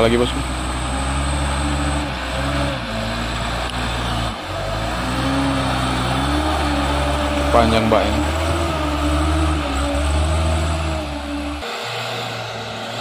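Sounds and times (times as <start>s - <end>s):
diesel truck engine revving: 0.0s - 13.0s.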